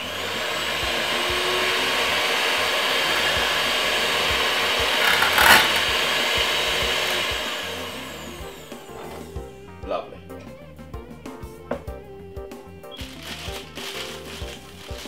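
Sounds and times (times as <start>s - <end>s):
electric hand mixer whisking: 0.0s - 10.0s, 12.3s - 15.0s
beaters rattling in jug: 4.4s - 7.3s, 13.0s - 15.0s.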